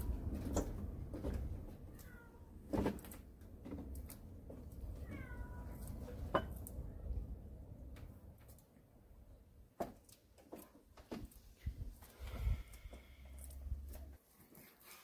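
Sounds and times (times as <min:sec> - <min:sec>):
cat meowing: 0:01.9 - 0:02.5, 0:05.0 - 0:05.9.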